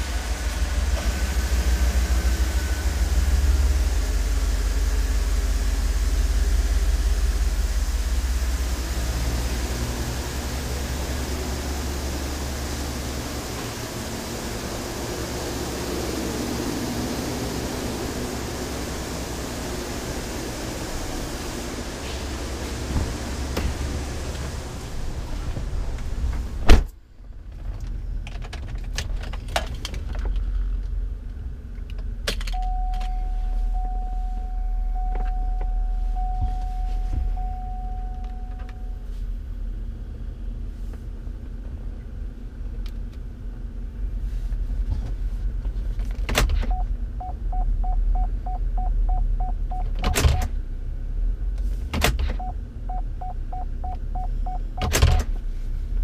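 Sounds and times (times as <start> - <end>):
car engine idling: 0.0 - 27.2
electronic chime tone: 32.6 - 39.0
quick beeps: 32.6 - 39.0.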